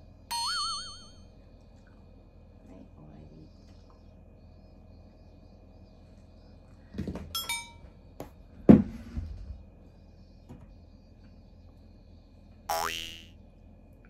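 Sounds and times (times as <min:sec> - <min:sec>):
descending chiming tones: 0:00.3 - 0:01.2.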